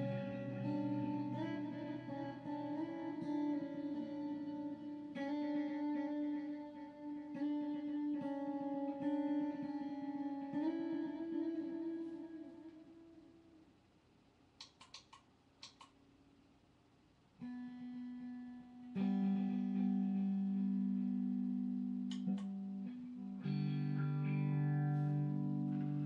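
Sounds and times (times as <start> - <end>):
electric guitar notes and chords: 0.0 - 13.6, 17.4 - 26.0
guitar string clicks: 14.6 - 16.0, 21.0 - 26.0.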